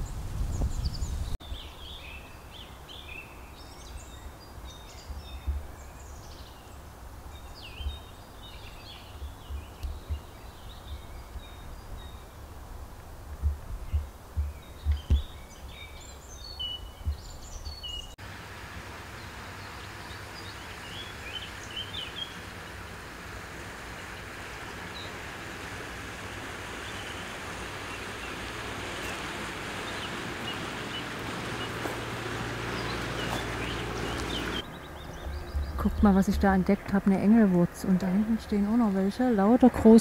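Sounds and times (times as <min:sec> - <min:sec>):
small birds chirping: 0:00.0 - 0:12.5, 0:13.4 - 0:18.2, 0:19.1 - 0:40.0
low thumps: 0:17.0 - 0:17.4.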